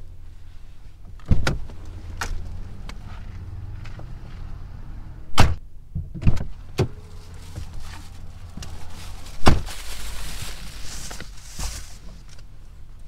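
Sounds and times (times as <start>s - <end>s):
steady low rumble: 0.0s - 13.0s
car door slamming shut: 5.3s - 7.7s, 9.4s - 9.7s.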